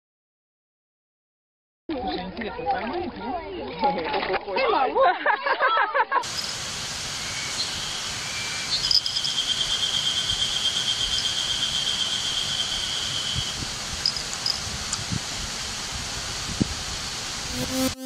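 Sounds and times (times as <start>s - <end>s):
woodland ambient hiss: 6.2s - 16.4s
high-pitched bird trill: 8.3s - 13.5s
short high chirps: 17.5s - 18.0s.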